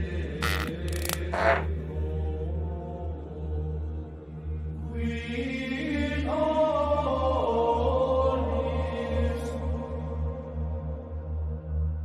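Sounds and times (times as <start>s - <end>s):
voices chanting: 0.4s - 1.7s.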